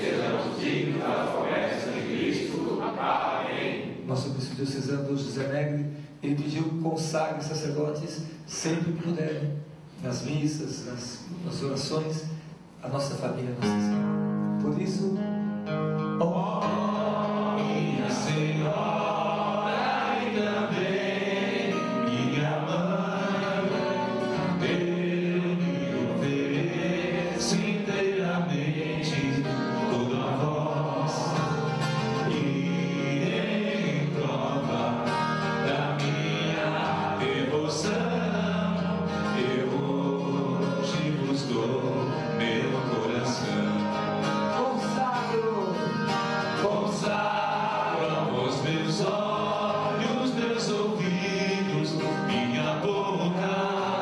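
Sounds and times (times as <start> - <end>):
guitar accompaniment: 0.0 - 8.0, 11.2 - 54.0
person singing a hymn: 16.0 - 54.0.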